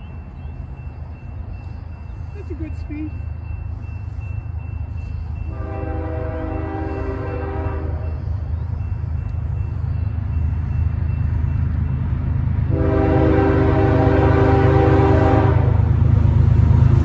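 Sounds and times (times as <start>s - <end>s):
low rumble of freight train: 0.0s - 17.0s
locomotive air horn blasts: 5.5s - 8.2s, 12.7s - 15.9s.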